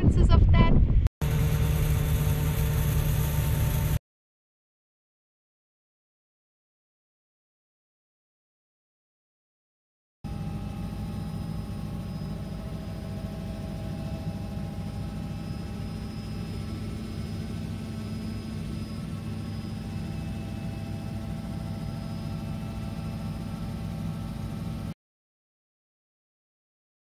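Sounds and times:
helicopter rotor and engine drone: 1.2s - 4.0s, 10.3s - 25.0s
faint high whines: 10.3s - 25.0s.

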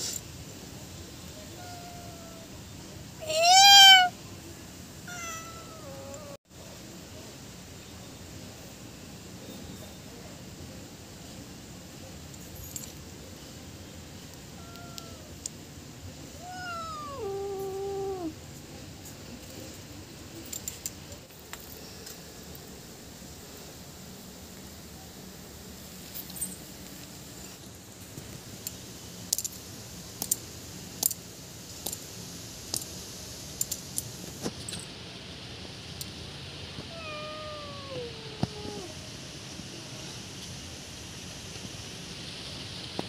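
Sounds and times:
faint background hiss: 0.0s - 43.0s
cat meowing: 1.4s - 2.5s, 3.2s - 4.2s, 5.1s - 6.4s, 14.6s - 15.4s, 16.4s - 18.4s, 36.8s - 39.0s.

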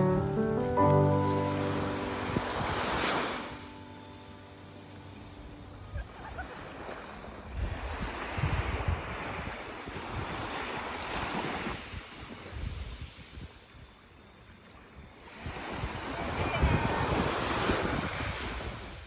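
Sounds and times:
waves washing onto sand: 1.4s - 3.7s, 6.0s - 13.7s, 15.2s - 19.0s
wind buffeting microphone: 7.3s - 14.0s, 15.4s - 19.0s.

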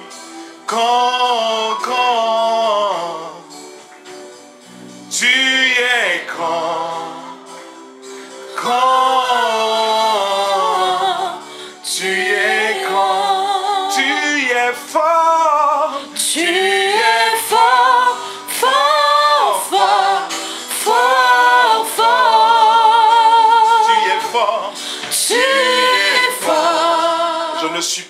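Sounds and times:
man singing worship song: 0.0s - 3.8s, 5.1s - 7.6s, 8.3s - 28.0s
women singing: 8.6s - 14.9s, 15.8s - 27.8s.

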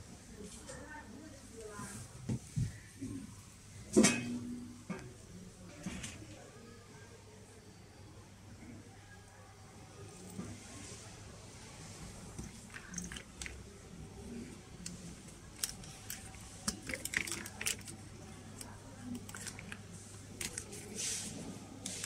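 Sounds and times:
silicone bowls clicking and rustling: 12.2s - 21.0s.

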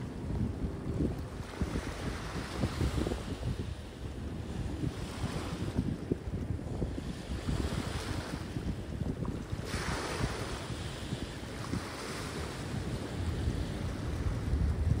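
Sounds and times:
wind rumbling on microphone: 0.0s - 15.0s
waves washing against rocks: 6.9s - 15.0s.

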